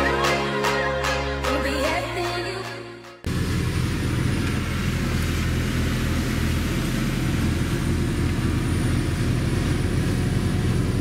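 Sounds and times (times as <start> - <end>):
truck diesel engine running: 3.3 - 11.0.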